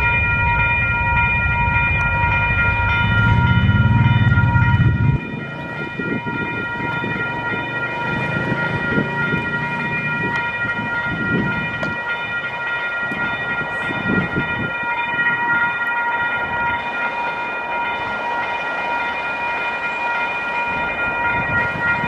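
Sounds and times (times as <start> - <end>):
low rumble: 0.0 - 5.4
level crossing bells ringing: 0.0 - 22.0.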